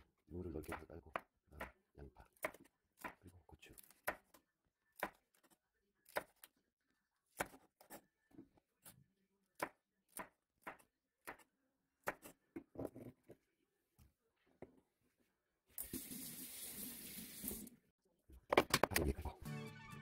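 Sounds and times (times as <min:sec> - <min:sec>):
knife chopping on cutting board: 0:07.4 - 0:08.0, 0:09.6 - 0:12.4.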